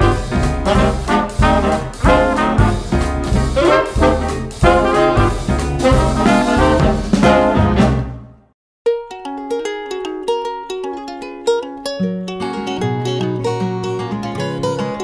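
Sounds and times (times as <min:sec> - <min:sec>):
swing music with brass: 0:00.0 - 0:08.5
plucked-string tune: 0:08.8 - 0:15.0.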